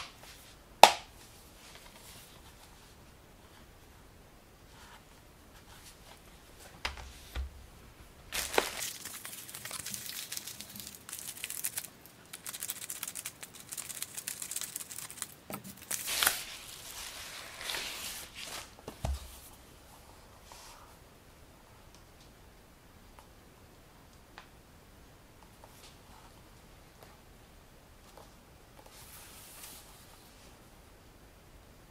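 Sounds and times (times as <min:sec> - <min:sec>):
plastic mailer crinkling: 0:08.3 - 0:18.5.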